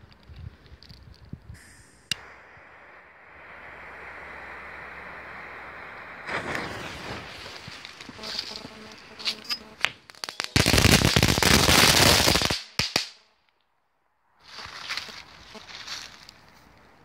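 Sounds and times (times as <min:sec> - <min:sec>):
fireworks crackling: 0:00.0 - 0:13.5, 0:14.4 - 0:16.8
firework pops: 0:01.4 - 0:13.2.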